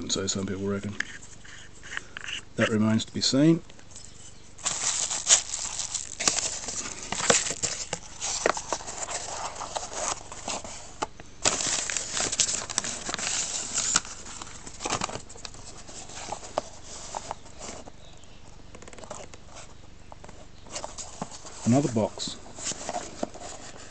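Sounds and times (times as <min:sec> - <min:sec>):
bubble wrap and paper crinkling: 0:03.9 - 0:18.2, 0:20.4 - 0:23.9.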